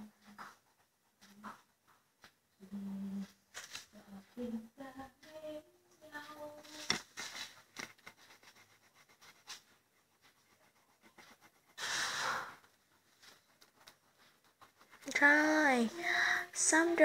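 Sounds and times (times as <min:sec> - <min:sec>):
crayon scratching on paper: 0:06.4 - 0:17.0
loud breath close to microphone: 0:11.8 - 0:12.6, 0:16.0 - 0:16.5.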